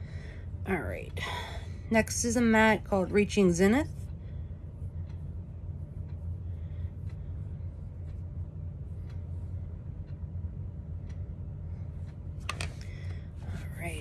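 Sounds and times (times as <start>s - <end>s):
low background rumble: 0.0s - 14.0s
faint soft ticks: 3.3s - 13.2s.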